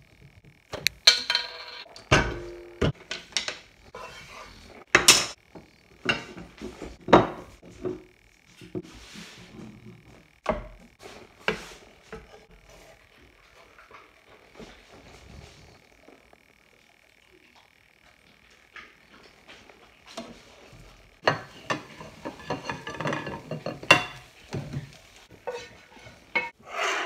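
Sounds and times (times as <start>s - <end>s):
kitchen utensils knocking and clinking: 1.0s - 4.1s, 4.9s - 5.4s, 6.0s - 8.0s, 21.2s - 27.0s
wooden spatula in frying pan: 10.5s - 13.0s, 20.1s - 27.0s.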